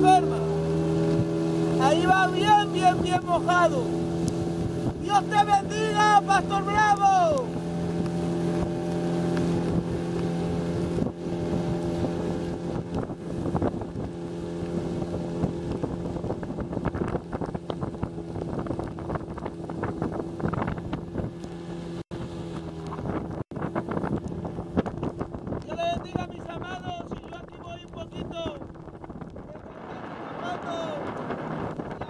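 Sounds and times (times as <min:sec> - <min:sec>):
outboard motor running: 0:00.0 - 0:32.0
water rushing and splashing: 0:00.0 - 0:32.0
wind buffeting microphone: 0:00.0 - 0:32.0.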